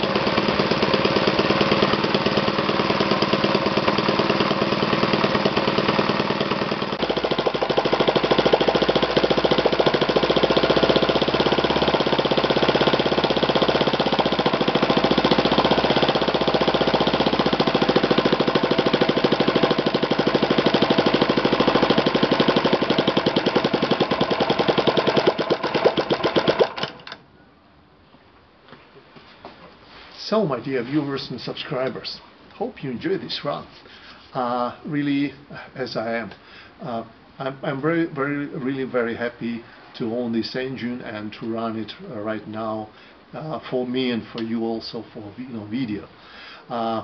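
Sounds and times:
model engine running: 0.0s - 27.2s.

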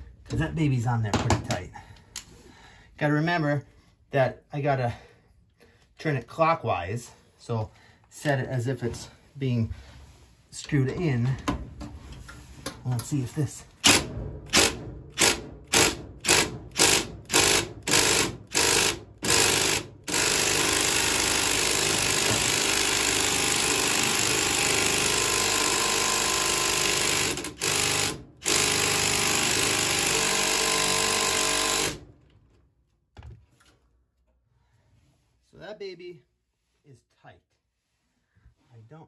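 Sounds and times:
impact driver hammering: 13.8s - 32.0s.

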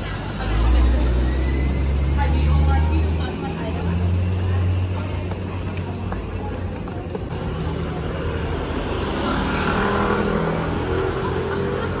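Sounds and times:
city street traffic hum: 0.0s - 12.0s
motor scooter passing: 7.3s - 12.0s.

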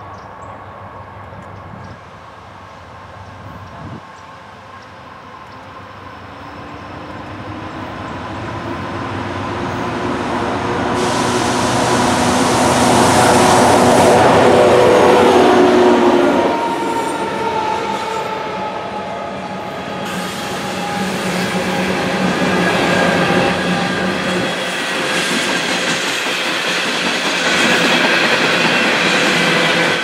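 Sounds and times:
diesel locomotive engines passing: 0.0s - 30.0s
freight cars rolling past: 4.6s - 25.0s.

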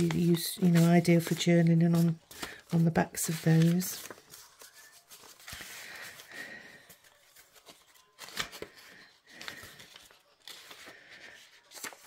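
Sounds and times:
paper flicks and crinkles: 0.0s - 6.3s, 11.6s - 12.0s
paper rustling: 0.0s - 12.0s.

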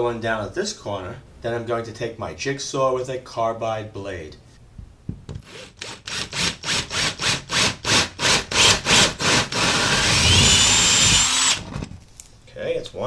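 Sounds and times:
drill boring into plaster wall: 5.4s - 12.0s.

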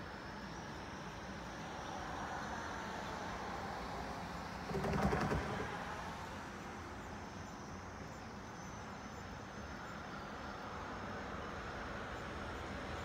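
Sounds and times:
bird wings flapping: 4.7s - 5.8s.

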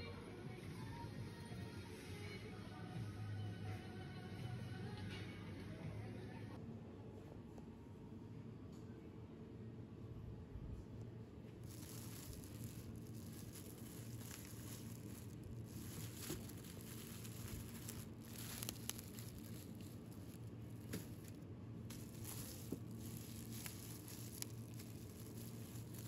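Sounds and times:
low background hum: 0.0s - 26.0s
plastic bags crinkling: 11.6s - 26.0s.

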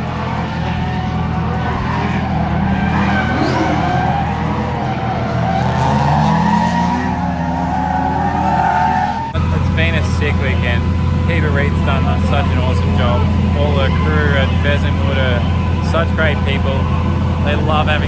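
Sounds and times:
car engines revving: 0.0s - 18.0s
tyres squealing: 1.3s - 9.4s.

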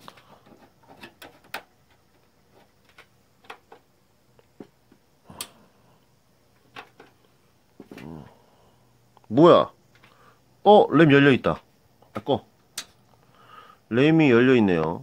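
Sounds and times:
clicks and taps handling computer parts: 0.0s - 5.5s, 6.5s - 7.2s.

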